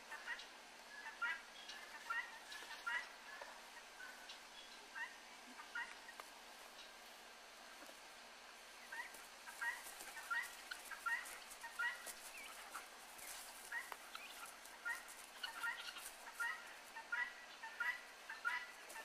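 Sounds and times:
turkey gobbling: 0.0 - 6.2, 8.8 - 19.0.

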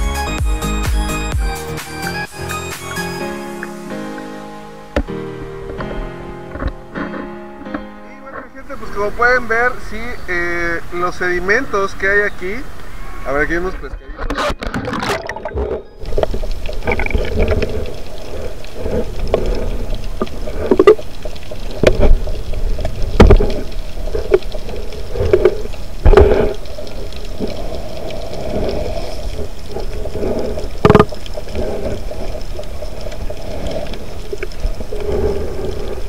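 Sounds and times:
sharp clicks and knocks: 30.8 - 31.4.

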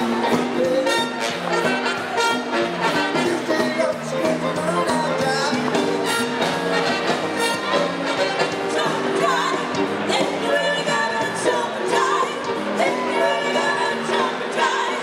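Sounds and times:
person singing: 0.0 - 1.9, 3.0 - 6.0
dance band with horns: 0.0 - 15.0.

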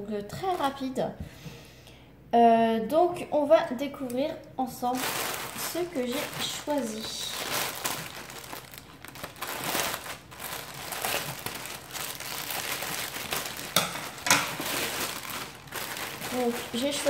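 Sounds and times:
plastic bag crinkling: 0.3 - 1.0, 4.8 - 17.0
scissors cutting plastic: 12.7 - 17.0.

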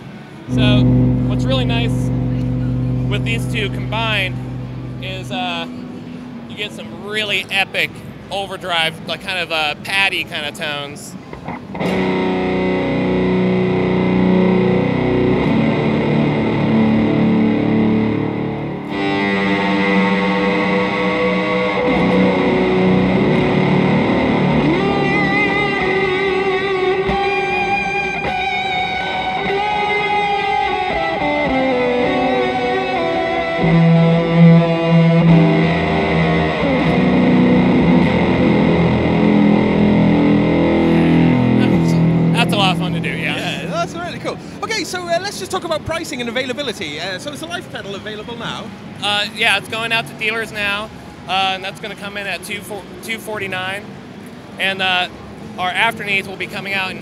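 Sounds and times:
distorted electric guitar tones: 0.4 - 6.7, 11.5 - 44.2.

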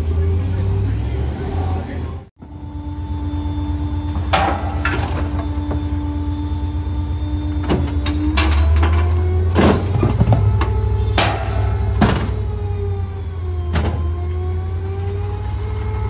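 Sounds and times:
garbage truck engine rumbling: 0.0 - 16.0
steady whine: 0.5 - 16.0
metal knocks and clanks: 7.6 - 12.6.

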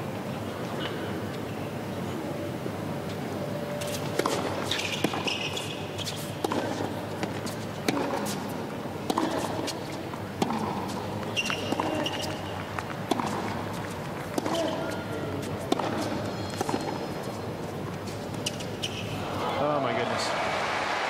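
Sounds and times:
shoes squeaking on court: 3.0 - 19.3
racket hitting tennis ball: 3.8 - 17.3
ball bouncing: 6.4 - 8.4, 9.1 - 9.8, 10.4 - 15.0, 15.6 - 17.0.

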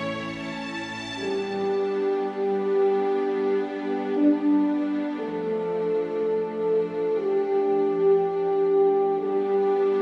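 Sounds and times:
slow music with held notes: 0.0 - 10.0.

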